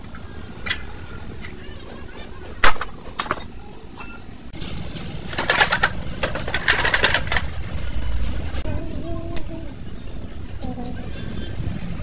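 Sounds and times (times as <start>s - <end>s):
metal parts rattling clinks: 2.8s - 4.3s, 5.3s - 7.6s
metal clank with ring: 3.2s - 4.3s.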